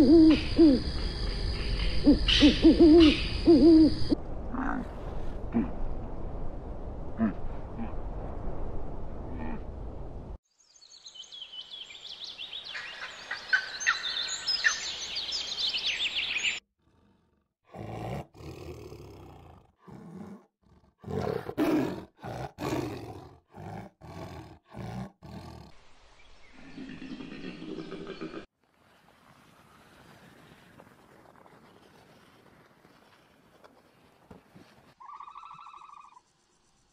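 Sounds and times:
tiger growling: 16.8 - 25.8.

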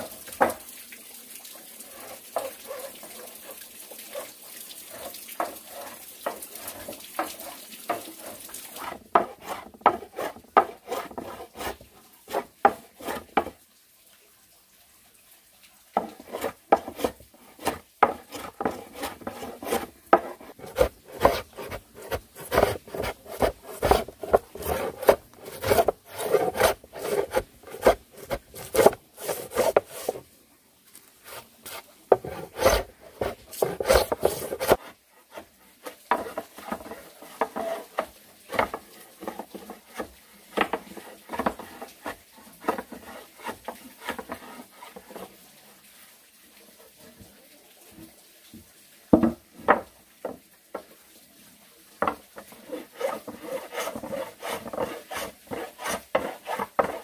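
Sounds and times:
hand tool scraping wood: 4.9 - 13.5, 16.0 - 30.2, 31.2 - 45.3, 52.0 - 57.0.

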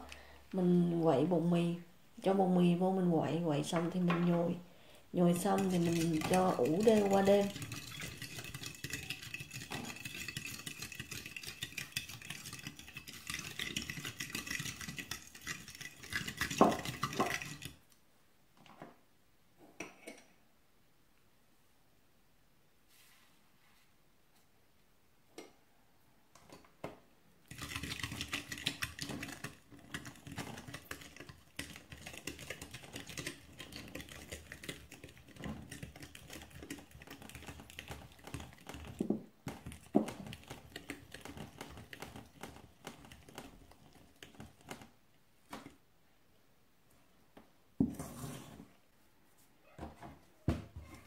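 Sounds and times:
fork and spoon stirring in glass bowl: 5.3 - 17.8, 27.5 - 43.3.

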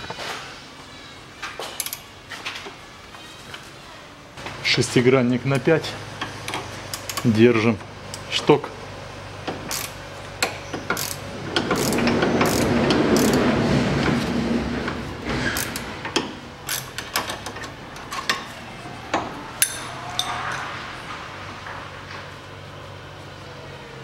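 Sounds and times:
hand ratchet clicking: 9.7 - 10.0, 10.9 - 13.4
steel tools clinking on metal: 19.6 - 20.7.

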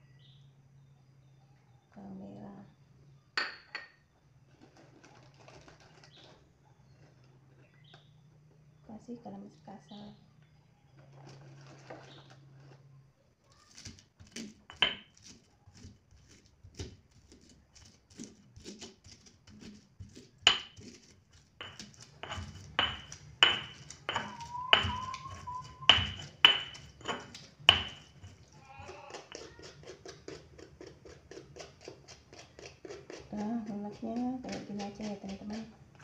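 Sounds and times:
pestle grinding strokes: 13.6 - 36.0
stone pestle pounding in mortar: 13.8 - 15.4, 16.2 - 35.7.

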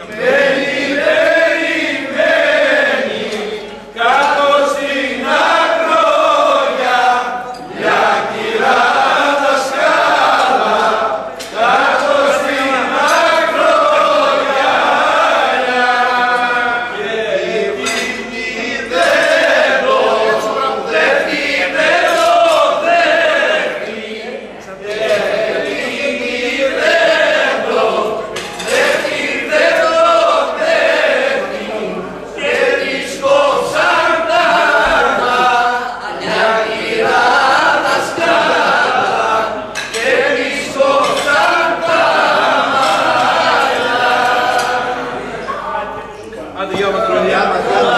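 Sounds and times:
men singing without instruments: 0.2 - 24.0, 32.4 - 45.0.

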